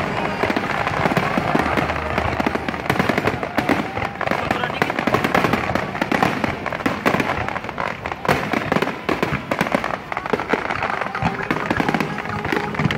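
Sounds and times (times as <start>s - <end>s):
fireworks bangs: 0.0s - 12.9s.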